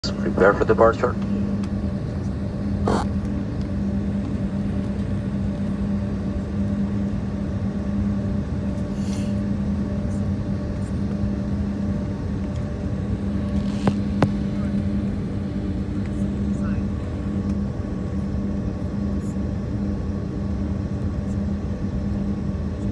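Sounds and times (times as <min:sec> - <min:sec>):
jet engines droning: 0:00.0 - 0:22.9.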